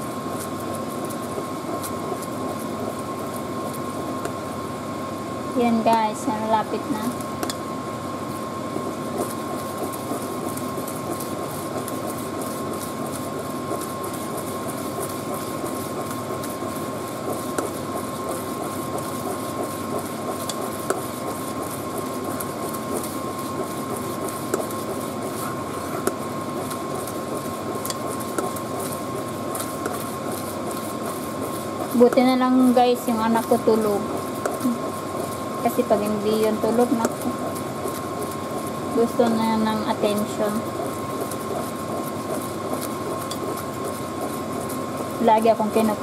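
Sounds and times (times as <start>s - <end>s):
mechanical hum with whine: 0.0s - 46.0s
rice pot bubbling: 0.0s - 46.0s.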